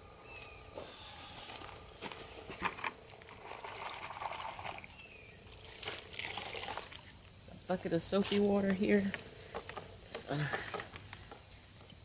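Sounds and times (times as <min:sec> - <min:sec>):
footsteps on pine straw: 0:00.4 - 0:02.6.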